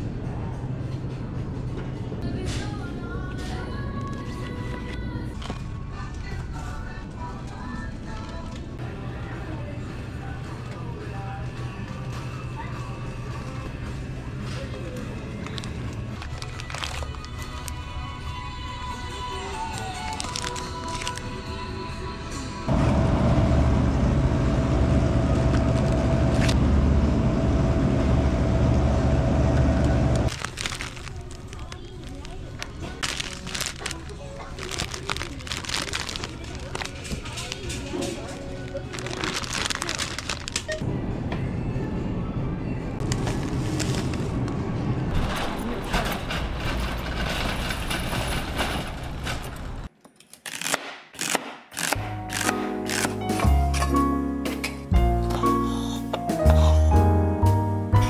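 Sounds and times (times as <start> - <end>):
background music: 0.0 - 22.7, 51.2 - 58.0
refrigerator hum: 22.7 - 32.4
shopping cart rattling: 30.3 - 40.8, 45.1 - 49.9.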